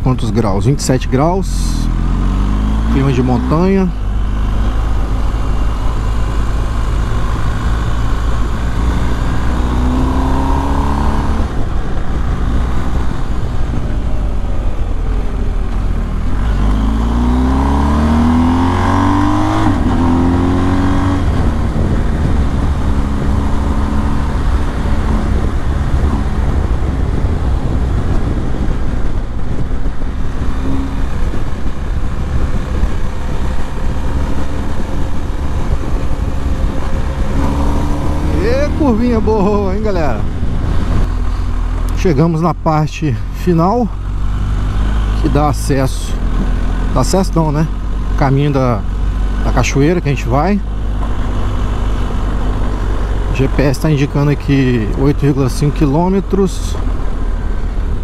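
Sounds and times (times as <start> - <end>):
motorcycle engine running: 1.5 - 58.0
wind rush on microphone: 4.0 - 41.9.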